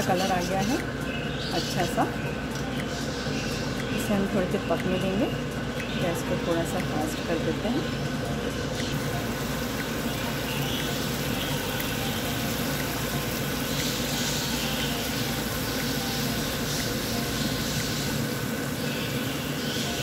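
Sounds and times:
liquid boiling in a pan: 8.6 - 20.0.

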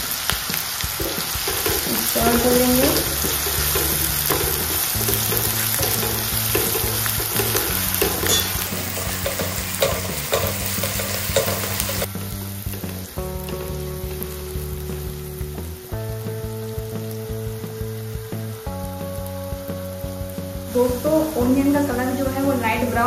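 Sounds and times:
vegetables sizzling in hot oil: 0.0 - 23.0
spatula scraping pan: 1.0 - 12.1.

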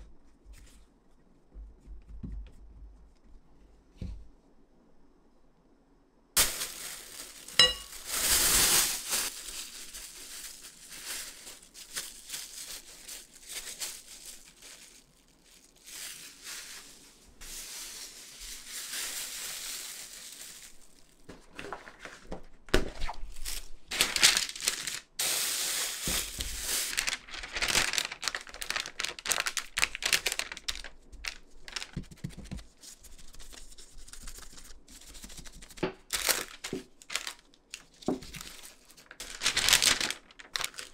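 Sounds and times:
plastic wrap crinkling: 6.4 - 40.9
glass bowl clink: 7.6 - 8.0.

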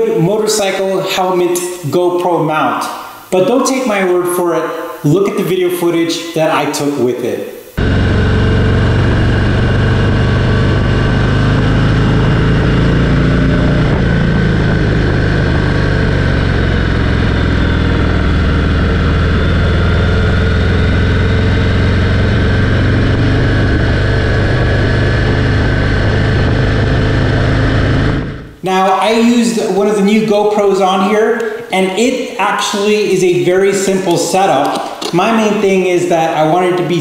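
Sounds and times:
motorcycle engine running: 7.8 - 28.6
wind noise: 7.8 - 28.6.

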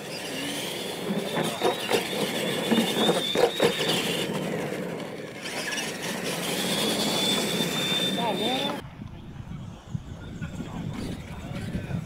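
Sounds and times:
electric motor whine: 0.0 - 8.8
toy trucks knocking and thumping: 0.9 - 8.1.

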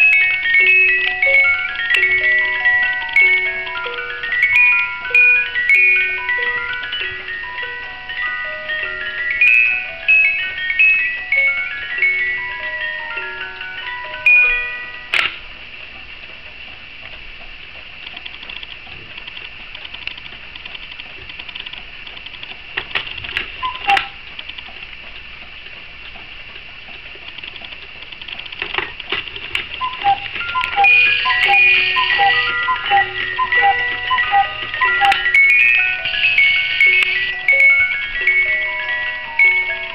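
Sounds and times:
clock clicks: 0.0 - 7.8, 16.3 - 39.9
music box tinkling tune: 0.0 - 15.5, 29.8 - 39.9
clock ticking: 26.0 - 39.9.

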